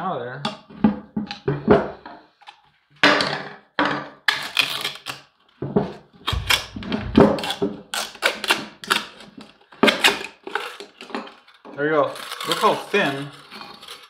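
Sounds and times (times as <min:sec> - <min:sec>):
knocks on wooden workbench: 0:05.6 - 0:07.5
screwdriver prying and scraping: 0:06.3 - 0:14.0.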